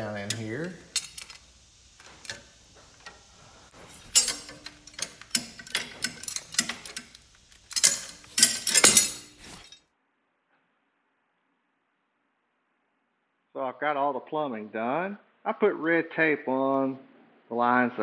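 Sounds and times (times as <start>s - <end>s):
metal fittings clicking: 0.0s - 9.8s
tool on metal contact: 0.0s - 9.8s.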